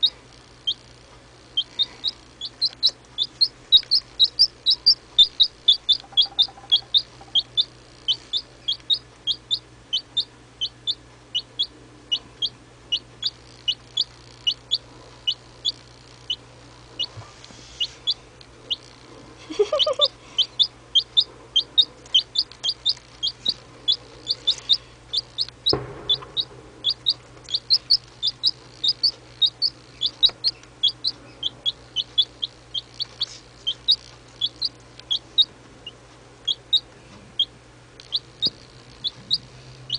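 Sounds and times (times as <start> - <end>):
chick peeping: 0.0 - 39.9
low-pitched chick call: 19.4 - 22.5
knock: 25.7 - 26.6.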